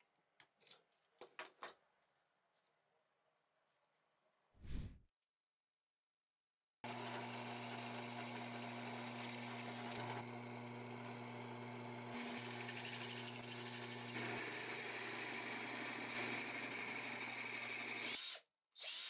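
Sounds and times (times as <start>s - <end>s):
drill press motor hum: 6.9s - 18.1s
drill bit cutting metal: 6.9s - 19.0s.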